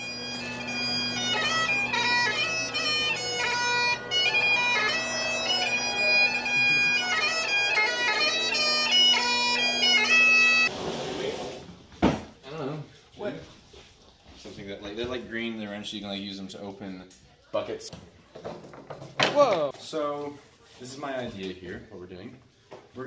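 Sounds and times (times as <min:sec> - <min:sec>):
bagpipes playing a tune: 0:00.0 - 0:10.7.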